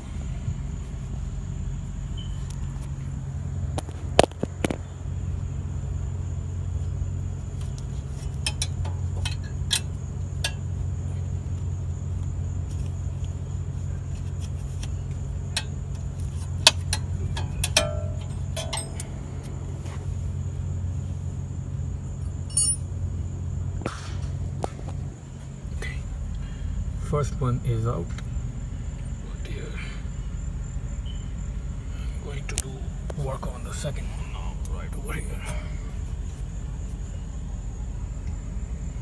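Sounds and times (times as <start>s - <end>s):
steady low hum: 0.0s - 39.0s
small metal part ringing: 16.7s - 19.2s, 22.5s - 22.9s
metallic clicks and clinks: 16.8s - 19.2s.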